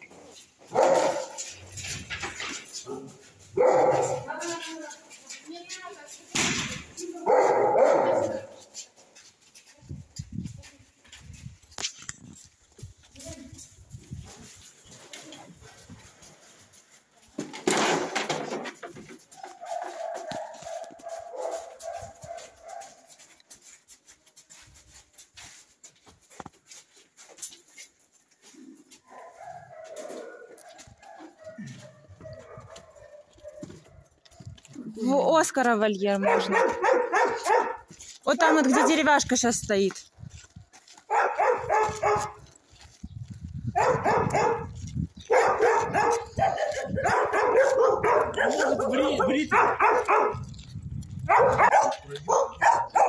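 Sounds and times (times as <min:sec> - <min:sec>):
dog barking: 0:00.7 - 0:01.5, 0:02.8 - 0:04.3, 0:07.2 - 0:08.6, 0:19.4 - 0:23.0, 0:29.1 - 0:34.2, 0:36.2 - 0:39.0, 0:41.1 - 0:42.4, 0:43.8 - 0:50.5, 0:51.2 - 0:53.0.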